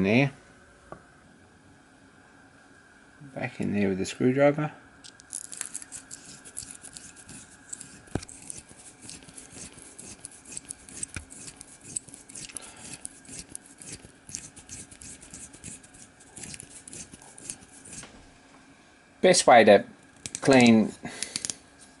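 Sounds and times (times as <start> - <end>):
gritty metal scratching and rubbing: 5.5 - 18.1.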